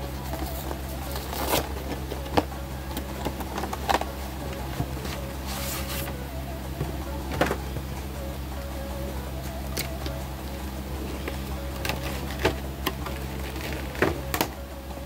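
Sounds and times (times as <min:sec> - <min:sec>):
low steady hum: 0:00.0 - 0:15.0
cardboard and packaging rustling: 0:00.1 - 0:06.2, 0:11.3 - 0:14.6.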